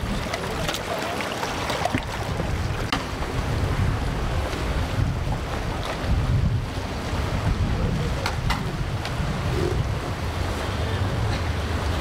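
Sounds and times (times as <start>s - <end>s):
surf: 0.0s - 12.0s
storm wind gusting: 2.0s - 10.5s.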